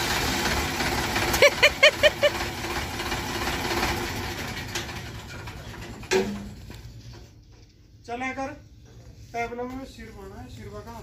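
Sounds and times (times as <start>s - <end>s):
tractor diesel engine idling: 0.0s - 6.1s.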